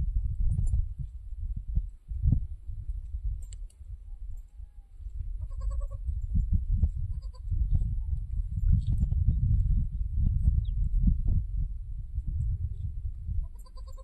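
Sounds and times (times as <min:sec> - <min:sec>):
low rumbling noise: 0:05.3 - 0:13.5
goat bleating: 0:05.4 - 0:06.0, 0:07.1 - 0:07.5, 0:13.4 - 0:14.0.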